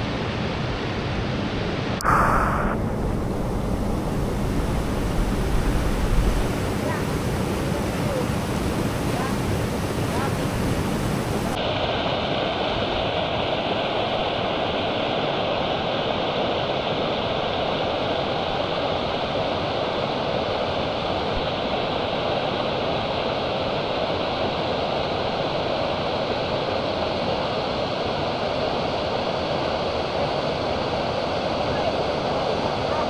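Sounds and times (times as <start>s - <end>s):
waterfall rushing: 2.0s - 11.6s.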